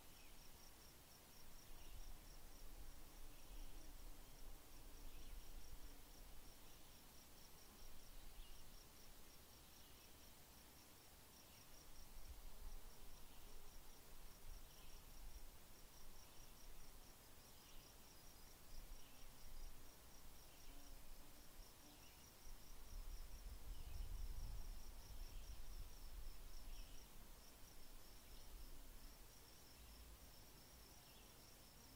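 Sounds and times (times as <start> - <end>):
faint insect chirping: 0.0 - 31.9
short lower insect calls: 21.7 - 31.9.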